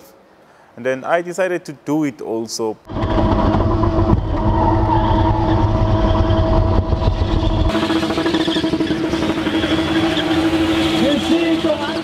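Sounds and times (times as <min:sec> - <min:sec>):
car engine at high revs: 0:05.6 - 0:12.0.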